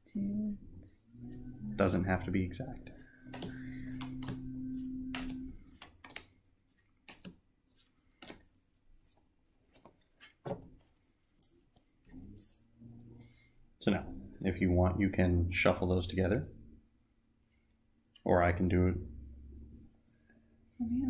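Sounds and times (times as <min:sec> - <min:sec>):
playing cards clicking on table: 0:03.3 - 0:04.4, 0:05.1 - 0:08.5.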